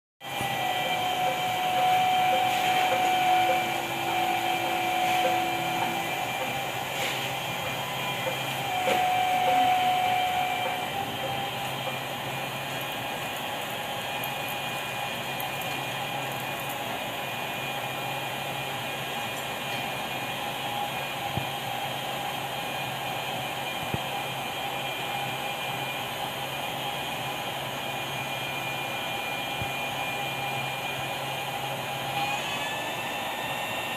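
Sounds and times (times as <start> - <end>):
cnc router whine: 0.2 - 33.9
router hissing and whining: 0.3 - 12.7, 32.0 - 33.9.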